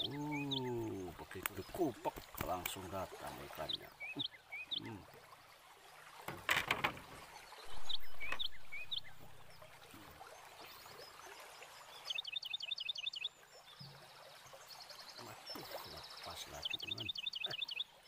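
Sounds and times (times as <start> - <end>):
water splashing: 0.0 - 12.1, 13.4 - 18.0
birds chirping: 0.0 - 18.0.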